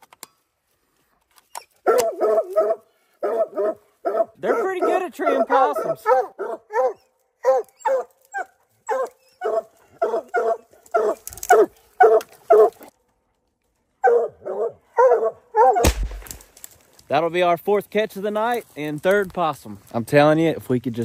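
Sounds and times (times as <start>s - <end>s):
dogs barking: 1.8s - 12.9s, 14.0s - 15.9s.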